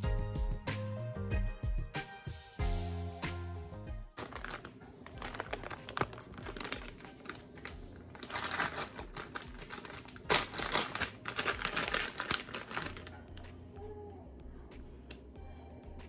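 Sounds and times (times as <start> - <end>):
plastic packaging crinkling: 4.2 - 13.2.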